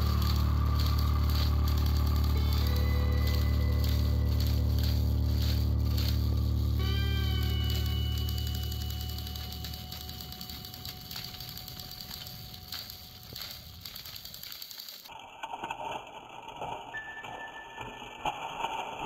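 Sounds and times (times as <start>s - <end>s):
background music: 0.0s - 13.3s
toy train motors whirring: 0.0s - 15.1s.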